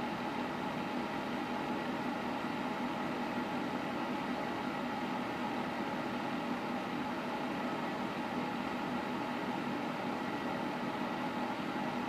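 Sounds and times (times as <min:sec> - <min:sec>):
space heater humming: 0:00.0 - 0:12.0.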